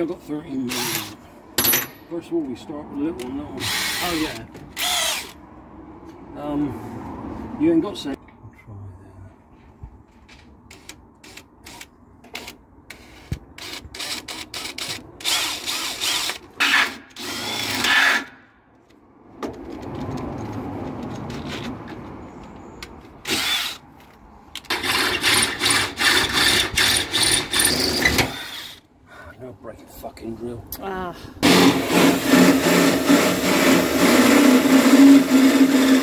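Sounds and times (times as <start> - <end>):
cordless drill boring into metal: 0.7 - 1.2, 3.6 - 5.4, 13.6 - 18.3, 23.3 - 23.8, 24.7 - 28.8, 31.4 - 36.0.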